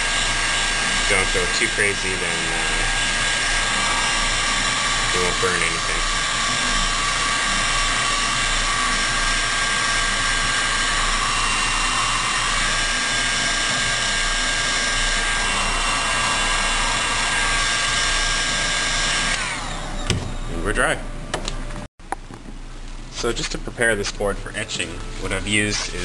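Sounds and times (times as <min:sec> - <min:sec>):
heat gun blowing air: 0:00.0 - 0:20.4
motor whine: 0:00.0 - 0:21.9.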